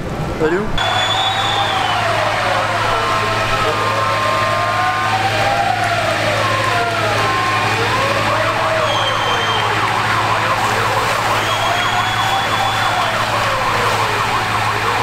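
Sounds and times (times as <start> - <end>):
siren wailing: 0.8 - 15.0
siren yelping: 0.8 - 15.0.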